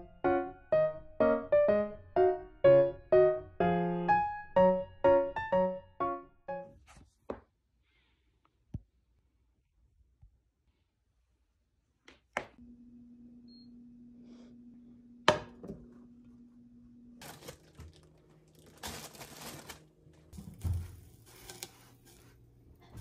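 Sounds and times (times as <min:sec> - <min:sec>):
rustling: 0:17.2 - 0:22.4.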